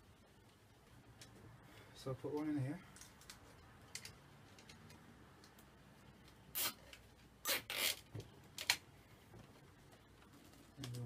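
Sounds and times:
cable tie ratchet zipping: 0:06.5 - 0:08.8.

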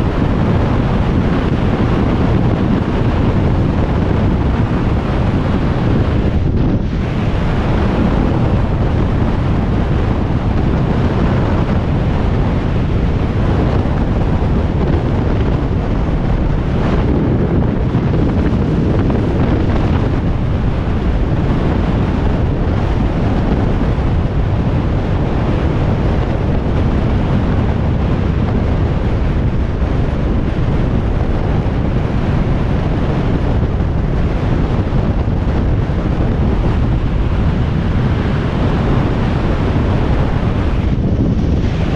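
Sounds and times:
wind roaring on microphone: 0:00.0 - 0:41.9.

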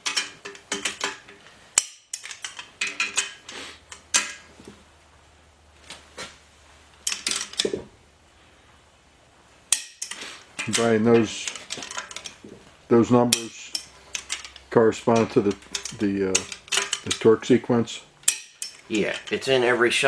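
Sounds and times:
wrench clicking on bolts: 0:00.0 - 0:04.4, 0:09.7 - 0:12.4, 0:13.3 - 0:17.3, 0:18.2 - 0:19.4.

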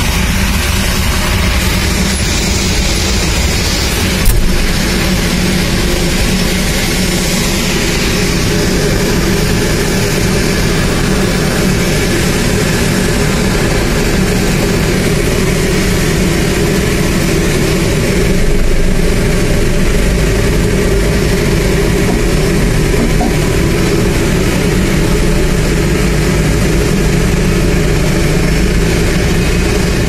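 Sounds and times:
engine hiss: 0:00.0 - 0:30.0
jet engine humming: 0:00.0 - 0:30.0.

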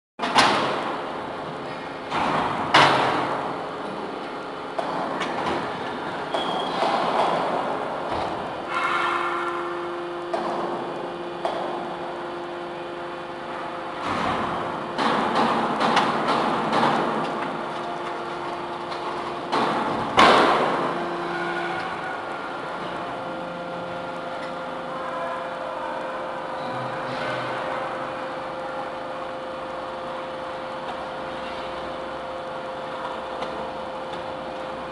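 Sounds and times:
hydraulic power unit humming: 0:00.2 - 0:34.9
steady background noise: 0:00.2 - 0:34.9
loud metal bang: 0:19.6 - 0:22.2.

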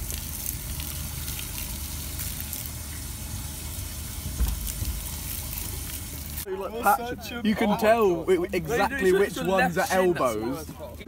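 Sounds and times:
water splattering onto grass: 0:03.7 - 0:06.4.

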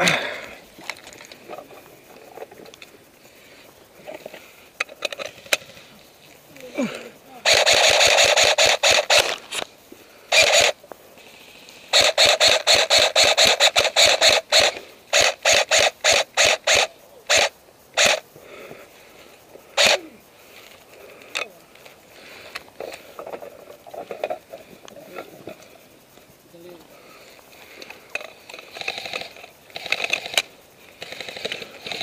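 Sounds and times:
airsoft guns firing: 0:07.4 - 0:09.4, 0:11.9 - 0:18.2.

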